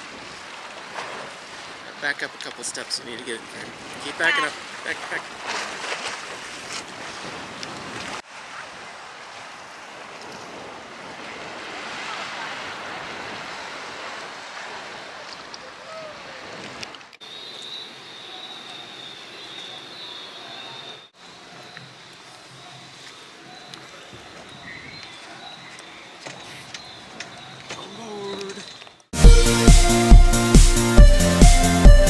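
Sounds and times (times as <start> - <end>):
surf washing against rocks: 0.0 - 17.2.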